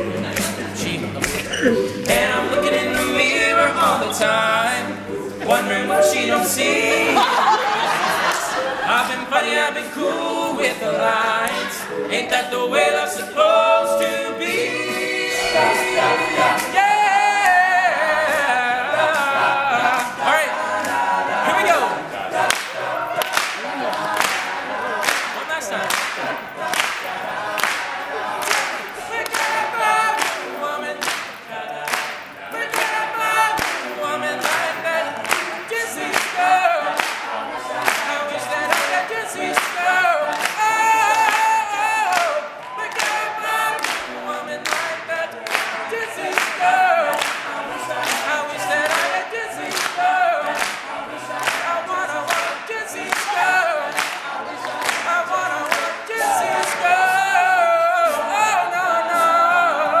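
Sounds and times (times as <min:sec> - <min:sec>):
percussive beat: 0:00.0 - 0:04.3
male a cappella group singing: 0:00.0 - 1:00.0.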